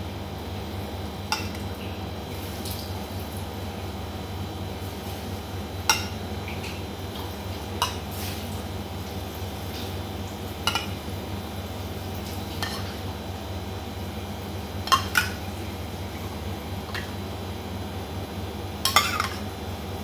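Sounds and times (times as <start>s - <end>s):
steady low hum: 0.0s - 20.0s
metal spoon clinking on pot: 18.9s - 19.4s.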